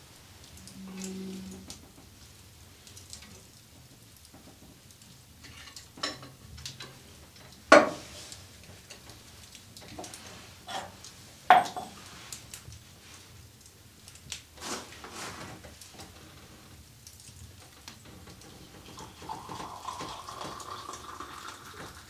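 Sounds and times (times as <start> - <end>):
metal ironware clanking: 11.5 - 12.0.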